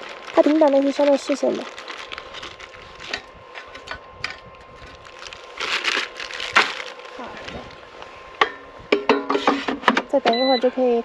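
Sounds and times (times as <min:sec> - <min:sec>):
plastic bag crinkling: 0:00.0 - 0:03.6, 0:04.7 - 0:07.8.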